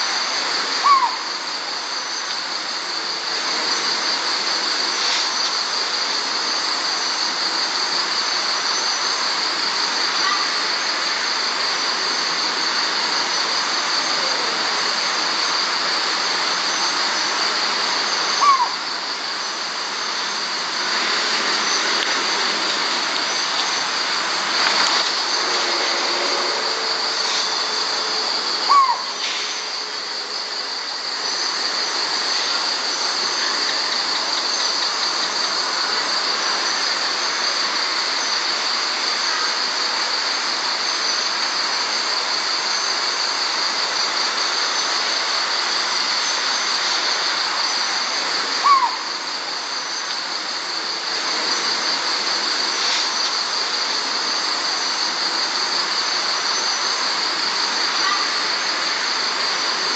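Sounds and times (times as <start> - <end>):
crickets and insects trilling: 0.0 - 59.9
hiss: 0.0 - 59.9
sharp falling calls: 28.6 - 29.2, 48.6 - 49.1.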